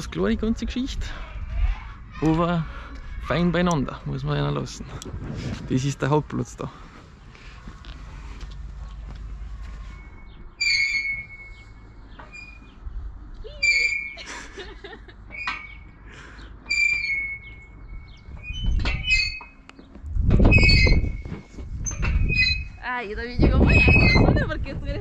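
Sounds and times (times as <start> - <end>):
swing squeaking: 9.3 - 24.7.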